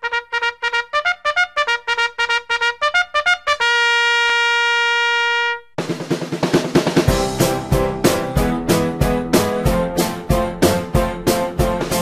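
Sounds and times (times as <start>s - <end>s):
drum beat: 5.8s - 12.0s.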